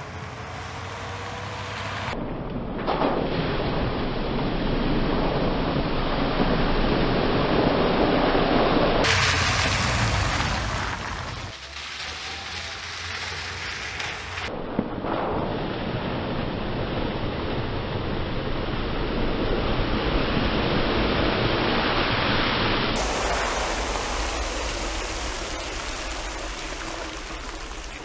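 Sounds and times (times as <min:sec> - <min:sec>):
water splashing and rushing: 0:03.1 - 0:14.5, 0:18.8 - 0:28.0.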